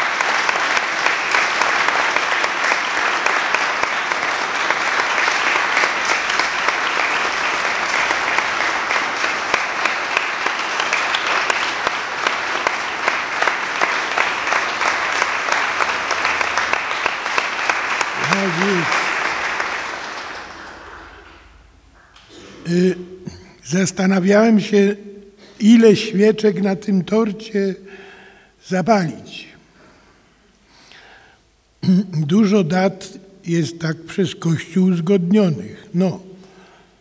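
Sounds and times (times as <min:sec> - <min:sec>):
crowd applauding: 0:00.0 - 0:23.4.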